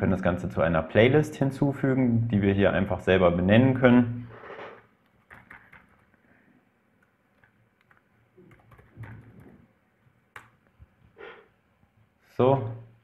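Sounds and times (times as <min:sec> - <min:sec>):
faint keyboard typing: 0:04.4 - 0:06.3, 0:07.0 - 0:11.2.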